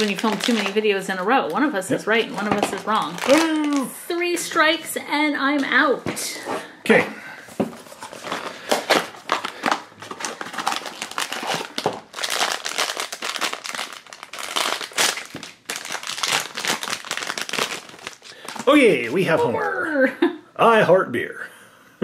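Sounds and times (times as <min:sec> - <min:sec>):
foil bag crinkling: 0:00.0 - 0:04.2, 0:07.8 - 0:19.2.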